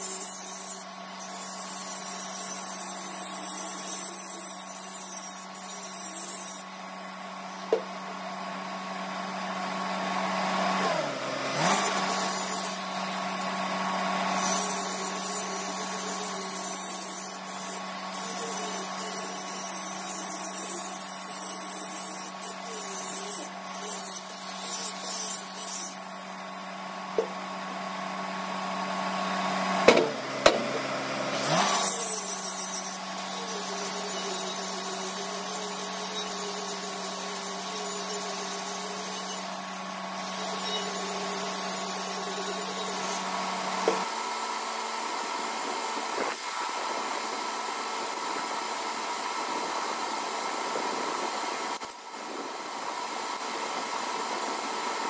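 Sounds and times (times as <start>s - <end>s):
angle grinder grinding steel: 0.0s - 44.4s.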